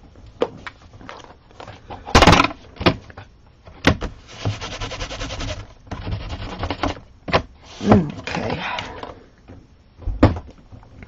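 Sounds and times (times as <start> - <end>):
quick rubbing: 4.2 - 6.9.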